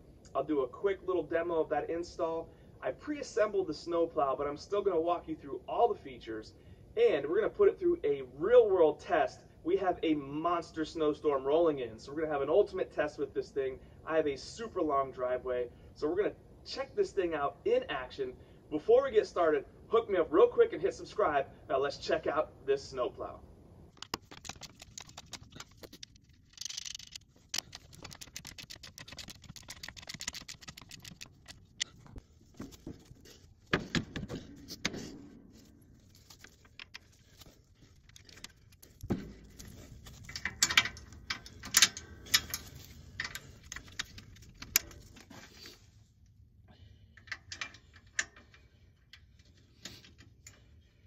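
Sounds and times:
steel parts clanking: 25.5s - 28.0s, 36.7s - 45.4s
ratchet wrench clicking: 26.4s - 31.6s.

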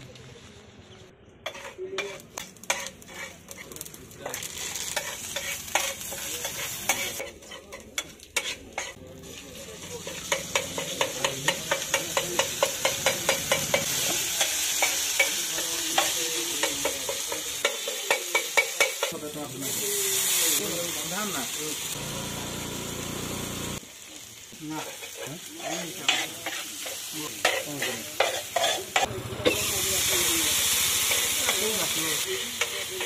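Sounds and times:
greens sizzling on griddle: 0.0s - 33.0s
metal spatula tapping on griddle: 10.2s - 13.9s, 15.2s - 19.2s.

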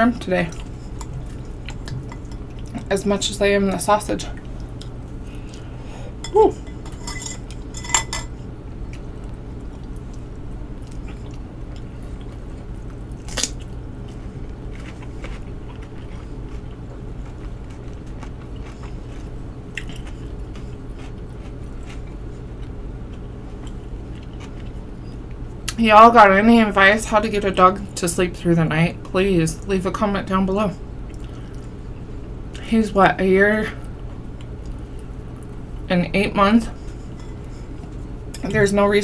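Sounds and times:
low steady hum: 0.0s - 39.0s
quiet chewing: 0.5s - 2.9s, 8.9s - 25.8s
fork clinking against glass bowl: 6.2s - 8.3s.

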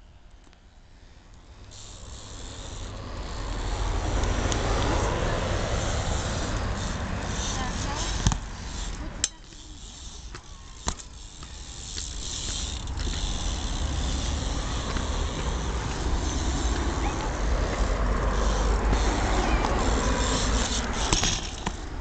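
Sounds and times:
bike wheels rumbling on concrete: 0.2s - 22.0s
bike sharp knocks: 8.0s - 9.6s, 10.2s - 13.7s, 20.6s - 21.8s.

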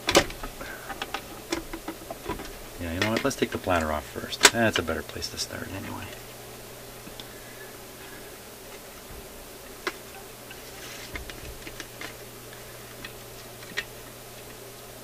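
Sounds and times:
clicks and taps on record platter: 0.0s - 5.0s
low steady hum: 0.0s - 15.0s.

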